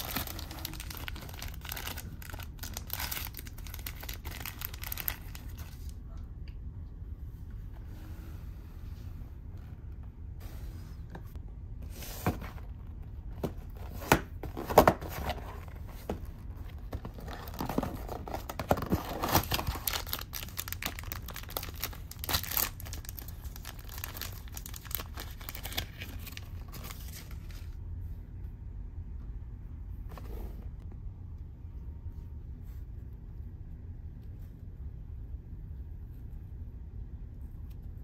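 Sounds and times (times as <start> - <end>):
packaging crackling: 0.0 - 5.9, 17.1 - 27.2.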